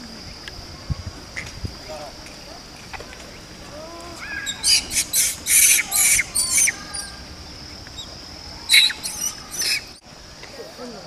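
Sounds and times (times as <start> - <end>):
monkeys squealing: 4.2 - 7.2, 8.0 - 10.0.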